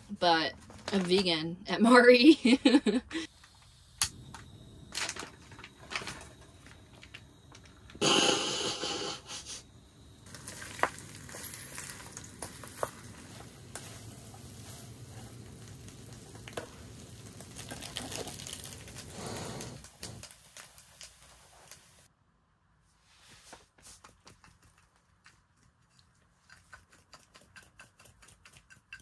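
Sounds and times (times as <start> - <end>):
loud burst of sizzling: 8.0 - 9.6, 10.2 - 22.1
food sizzling in a pan: 10.2 - 22.1.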